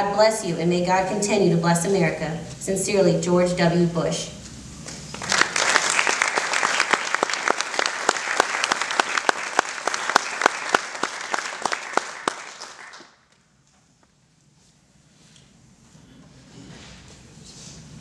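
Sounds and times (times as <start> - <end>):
audience applauding: 5.1 - 13.2.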